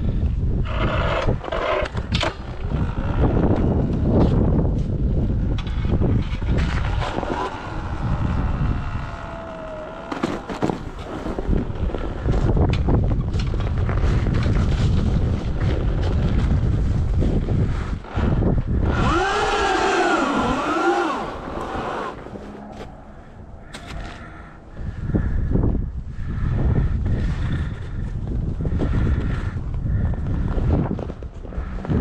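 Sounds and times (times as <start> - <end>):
wind buffeting microphone: 0.0 - 32.0
tyres rolling on pavement and snow: 6.3 - 12.5.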